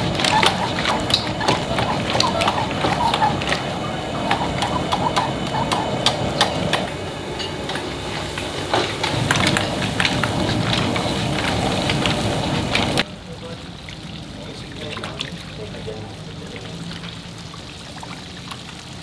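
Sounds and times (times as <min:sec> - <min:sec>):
gas burner rushing: 0:00.0 - 0:13.1.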